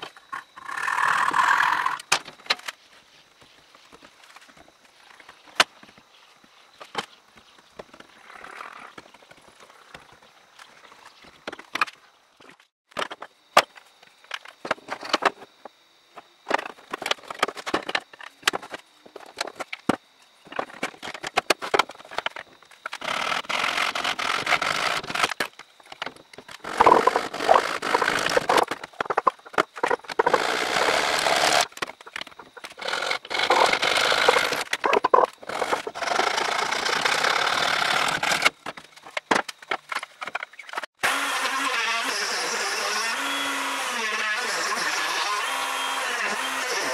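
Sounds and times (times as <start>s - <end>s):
tool scraping across wood: 26.6s - 31.7s, 32.5s - 38.5s.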